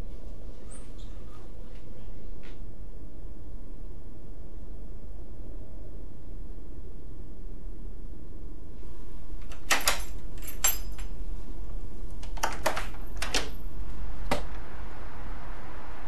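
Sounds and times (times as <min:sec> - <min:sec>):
key turning in lock: 0:09.4 - 0:11.1, 0:12.2 - 0:13.6
keys jangling: 0:09.4 - 0:11.1, 0:12.3 - 0:13.7
soft rushing noise: 0:13.6 - 0:16.0.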